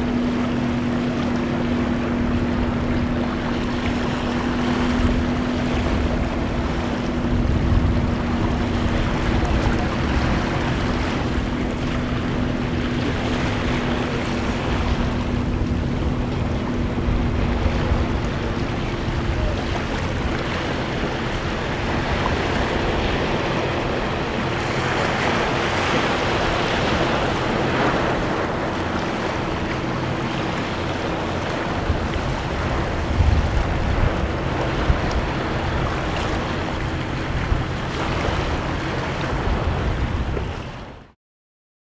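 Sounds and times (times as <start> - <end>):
steady motor hum: 0.0 - 41.0
wind rumbling on microphone: 0.0 - 41.2.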